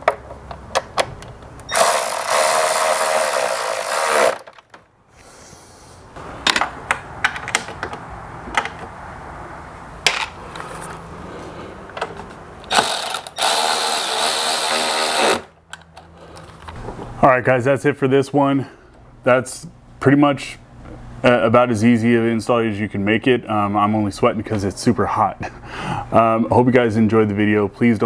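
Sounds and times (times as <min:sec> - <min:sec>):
handheld power tool running: 0:01.7 - 0:04.6, 0:12.7 - 0:15.5.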